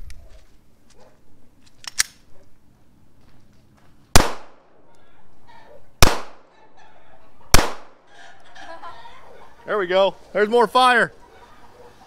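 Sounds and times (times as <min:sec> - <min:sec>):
loud gunshots: 0:04.2 - 0:04.6, 0:06.0 - 0:06.5, 0:07.5 - 0:08.0.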